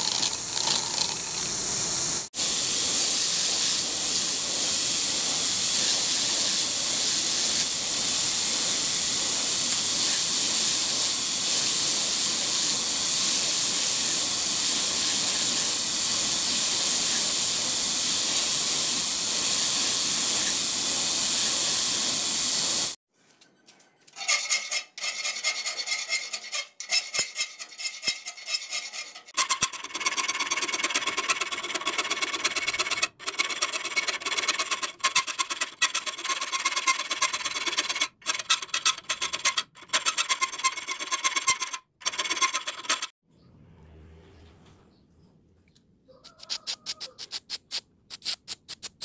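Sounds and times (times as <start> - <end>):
file scraping steel blade: 0.0 - 1.4, 24.1 - 43.2, 46.4 - 49.0
belt grinder hissing: 0.0 - 23.0, 24.3 - 43.1.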